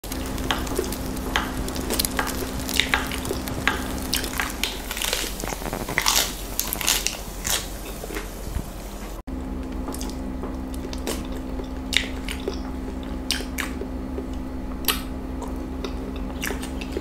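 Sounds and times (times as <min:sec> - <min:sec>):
crisp bites and crunches: 0:00.0 - 0:08.4
wet squishes: 0:00.0 - 0:08.4, 0:09.9 - 0:17.0
faint steady hum: 0:00.0 - 0:17.0.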